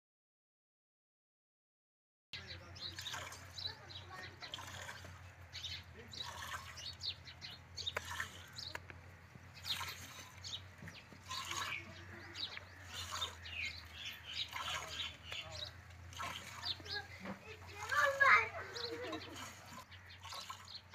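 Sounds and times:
milk squirting into metal pail: 0:02.8 - 0:05.3, 0:06.0 - 0:07.0, 0:07.8 - 0:08.9, 0:09.6 - 0:20.9.

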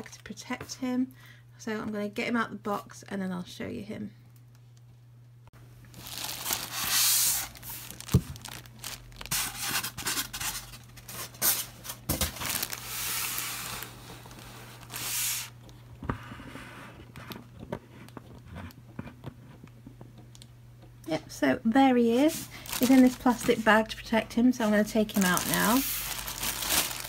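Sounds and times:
plastic bag crinkling: 0:05.9 - 0:15.8, 0:22.3 - 0:27.0.

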